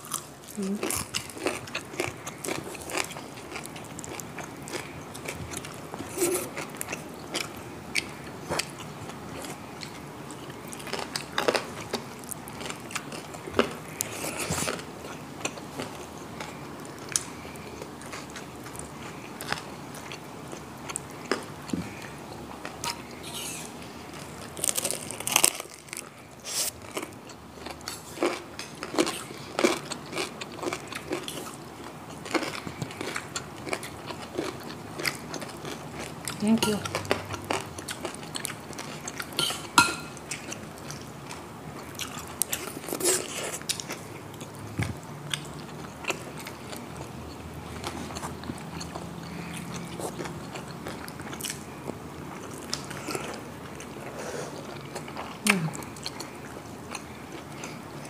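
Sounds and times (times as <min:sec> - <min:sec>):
crunching crispy food: 0:20.8 - 0:39.4.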